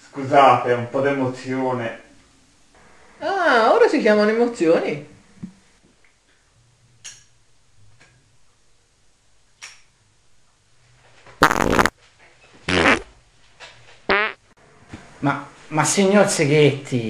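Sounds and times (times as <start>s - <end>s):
loud farts: 11.4s - 11.9s, 12.7s - 13.1s, 14.1s - 14.4s.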